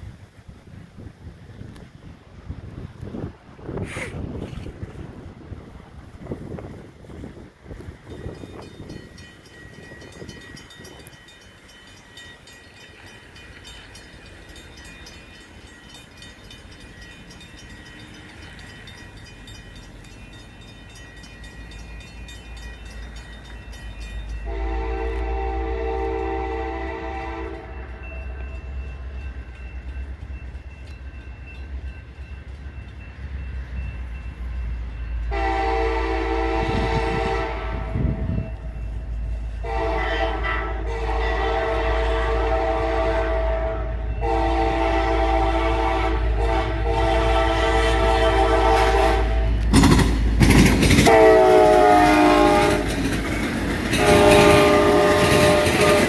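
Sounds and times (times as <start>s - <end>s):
low train rumble: 0.0s - 56.0s
crossing bell ringing: 7.7s - 49.9s, 50.5s - 56.0s
locomotive horn blasts: 24.4s - 28.5s, 35.3s - 38.6s, 39.6s - 49.7s, 51.0s - 53.0s, 53.9s - 56.0s.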